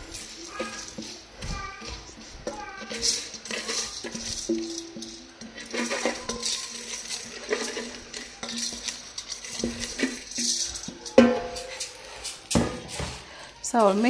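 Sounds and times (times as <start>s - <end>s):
wooden spoon scraping metal bowl: 0.0s - 14.0s.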